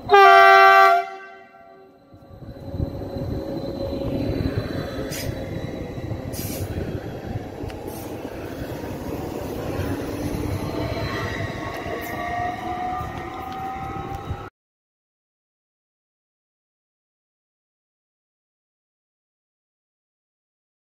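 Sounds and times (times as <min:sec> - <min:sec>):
train wheels rumbling on rail: 0:00.0 - 0:14.5
electric train motor whine: 0:01.5 - 0:14.5.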